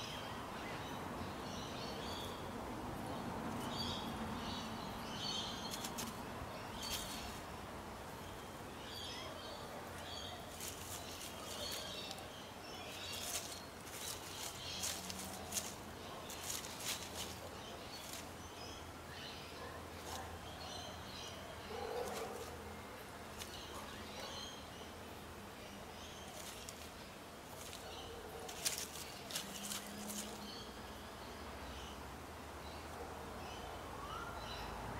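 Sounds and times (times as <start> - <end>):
dry leaf litter crackling: 3.5 - 31.1.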